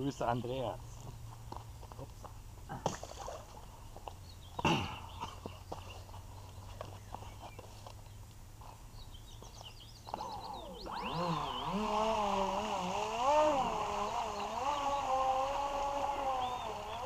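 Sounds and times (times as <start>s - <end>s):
birds chirping: 0.0s - 17.0s
toy boat motor whining: 10.1s - 17.0s.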